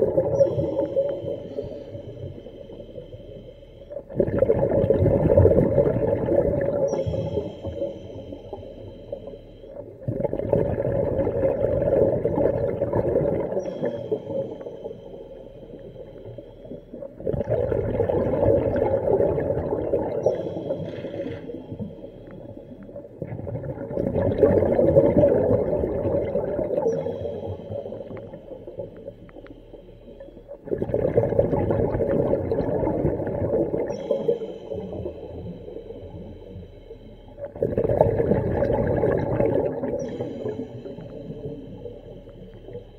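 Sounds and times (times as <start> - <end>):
diver exhaling bubbles underwater: 4.1 - 7.5, 10.0 - 13.8, 17.2 - 21.5, 23.2 - 28.0, 30.6 - 33.9, 37.4 - 40.6.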